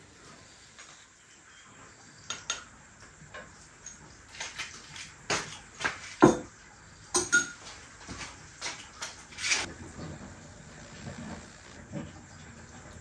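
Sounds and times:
metal utensils clinking on pot: 2.3s - 2.7s, 7.1s - 7.7s.

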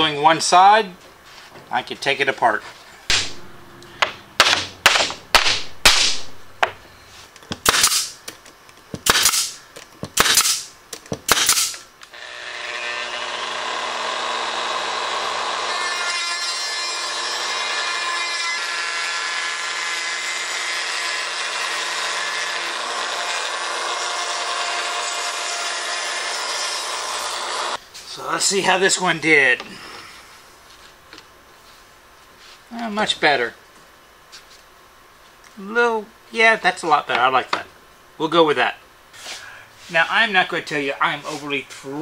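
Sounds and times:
sharp knocks: 3.1s - 6.8s
router cutting plywood: 11.5s - 27.8s.

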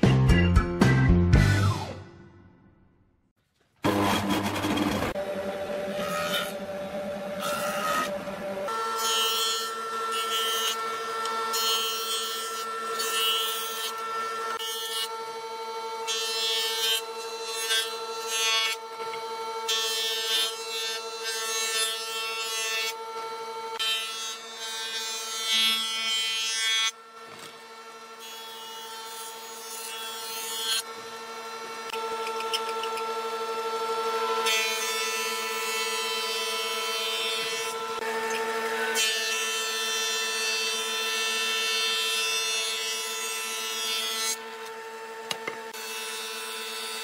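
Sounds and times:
jointer-planer whining: 3.8s - 47.0s
planer cutting wood: 3.8s - 47.0s.

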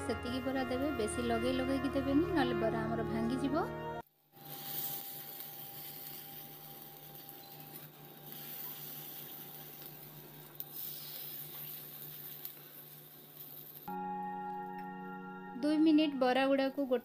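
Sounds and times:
batter sizzling in oil: 4.2s - 13.9s.

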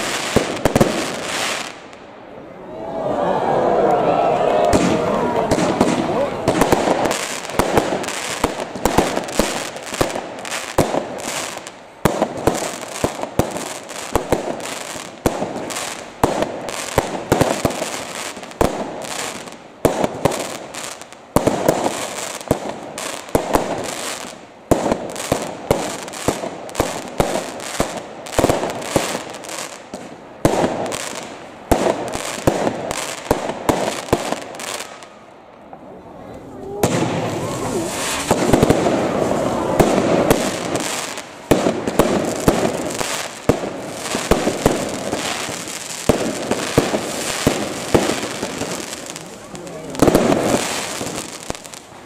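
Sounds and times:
fireworks bangs: 0.0s - 2.1s, 3.8s - 52.0s
fireworks crackling: 0.0s - 2.3s, 4.1s - 52.0s.

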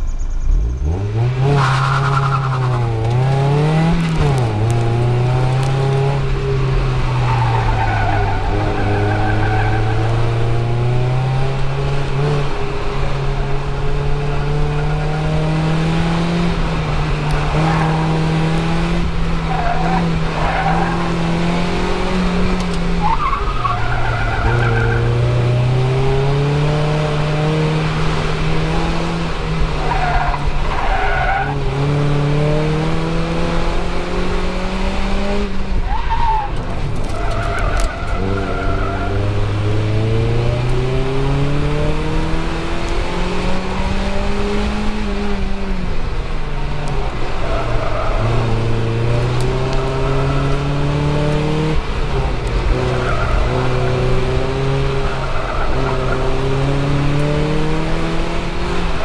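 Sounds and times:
car engine revving: 0.4s - 59.0s
tyres squealing: 7.0s - 10.7s, 22.7s - 25.4s.

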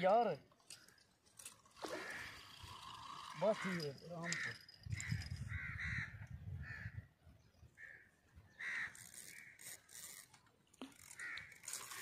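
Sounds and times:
crows cawing: 1.9s - 2.7s, 3.4s - 7.1s, 7.8s - 9.8s, 11.0s - 12.0s.

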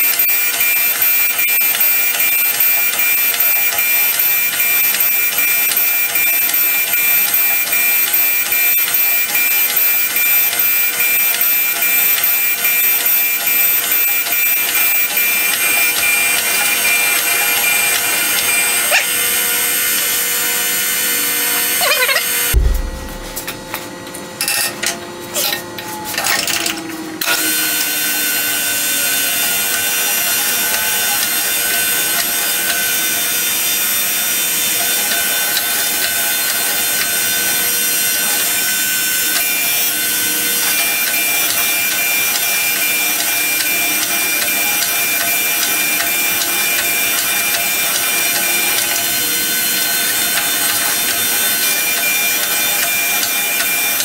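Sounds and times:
surface grinder whirring: 0.0s - 23.8s, 26.5s - 54.0s.

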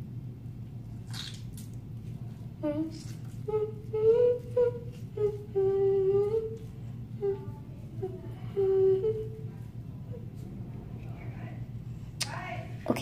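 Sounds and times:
girl humming: 2.5s - 10.4s.

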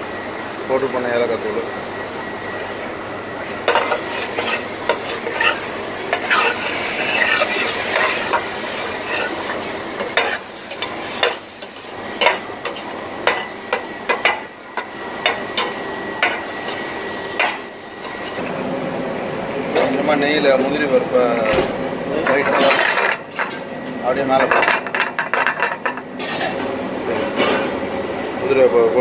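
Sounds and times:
food sizzling: 3.3s - 20.2s
metal spatula scraping pot: 3.6s - 18.4s.

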